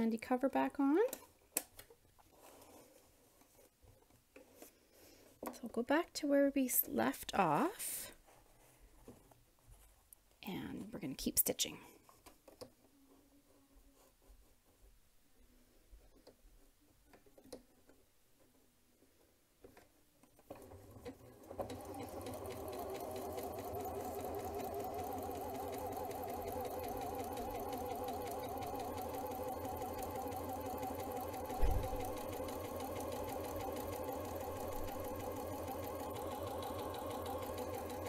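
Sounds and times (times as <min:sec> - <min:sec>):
sewing machine running: 0:20.5 - 0:38.0
low thump: 0:31.6 - 0:32.1.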